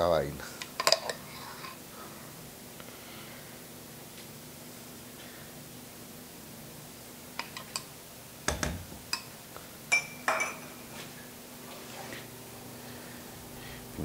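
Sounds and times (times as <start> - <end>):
metal spoon clinking on dishes: 9.9 - 10.7.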